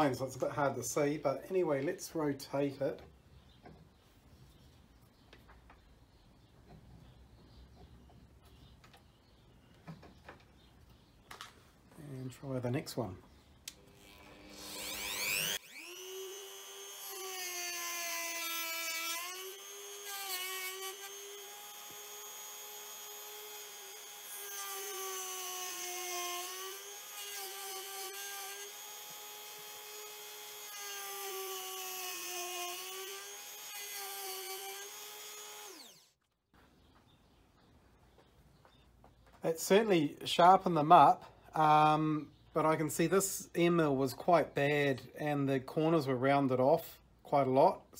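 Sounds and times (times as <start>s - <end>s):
rotary tool motor whine: 13.8s - 36.2s.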